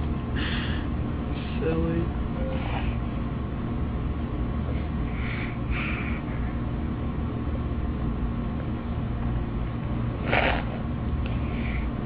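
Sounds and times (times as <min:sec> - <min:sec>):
steady low hum: 0:00.0 - 0:12.0
baby breathy huffs: 0:04.7 - 0:06.5.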